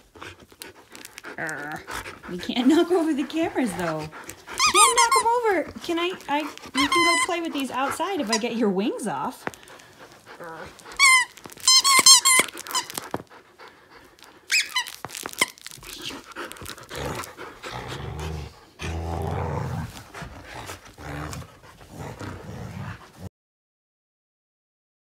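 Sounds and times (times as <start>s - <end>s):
dogs panting: 0.0s - 23.3s
dogs scuffling: 0.2s - 17.6s
dog toy squeaking: 4.5s - 8.6s, 10.7s - 13.2s, 14.5s - 15.9s.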